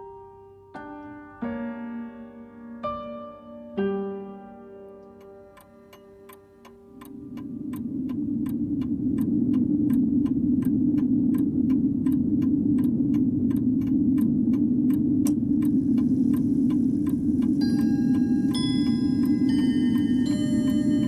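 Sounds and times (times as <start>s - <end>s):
clock ticking: 4.9s - 21.0s
low rumbling noise: 5.8s - 21.0s.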